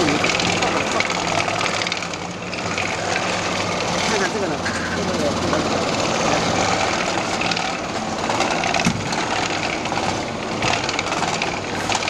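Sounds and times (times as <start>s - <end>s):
machine whirring with rapid rattling: 0.0s - 12.0s.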